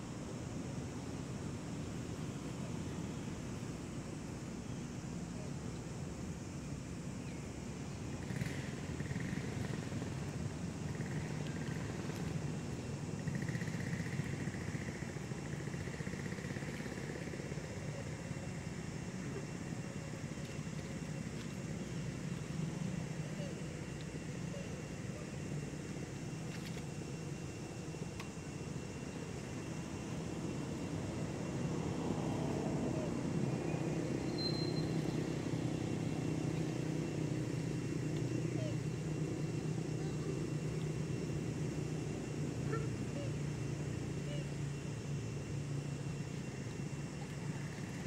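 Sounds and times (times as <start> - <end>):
distant engine drone: 0.1 - 48.0
high whistle-like tone: 34.2 - 35.0.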